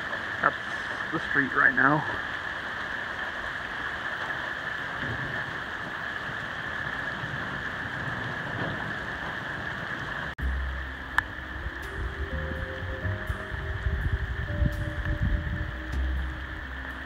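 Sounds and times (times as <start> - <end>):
heavy rain pouring: 0.0 - 17.0
low rumble: 6.3 - 17.0.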